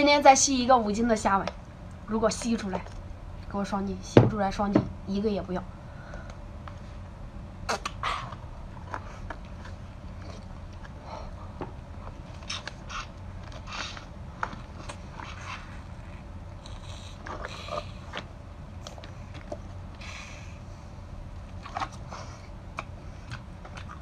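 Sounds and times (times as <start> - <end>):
sucking and slurping: 12.4 - 18.3.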